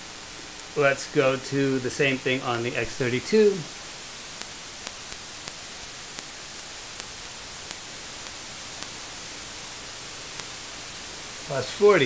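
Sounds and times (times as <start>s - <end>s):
steady electronic hiss: 0.0s - 12.0s
faint small clicks: 4.3s - 9.7s, 10.3s - 10.6s.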